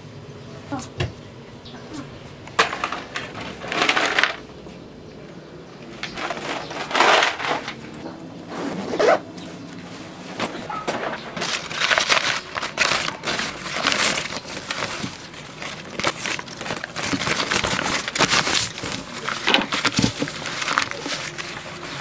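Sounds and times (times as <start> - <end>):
paper crinkling and rustling: 5.8 - 22.0.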